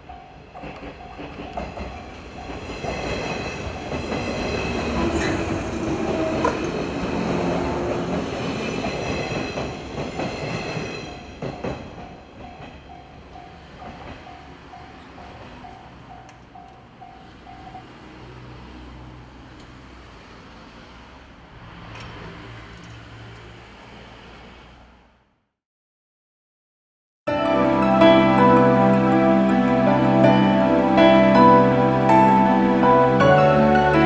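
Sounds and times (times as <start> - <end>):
crossing warning bell ringing: 0.0 - 18.1, 27.3 - 34.0
electric train rattling over rails: 0.0 - 25.1, 27.3 - 34.0.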